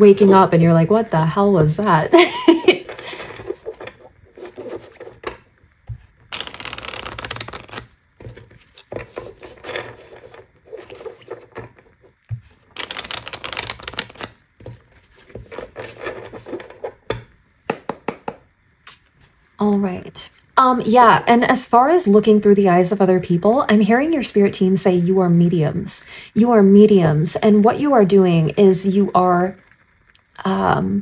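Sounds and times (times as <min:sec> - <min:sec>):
cards being shuffled: 0:02.5 - 0:17.1
sharp taps of cards: 0:17.2 - 0:18.4.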